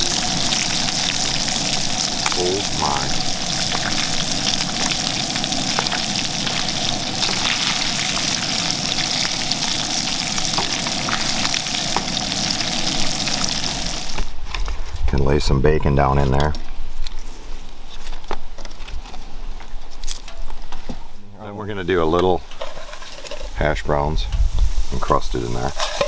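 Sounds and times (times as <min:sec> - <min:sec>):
fish sizzling in a frying pan: 0:00.0 - 0:14.3, 0:22.6 - 0:26.0.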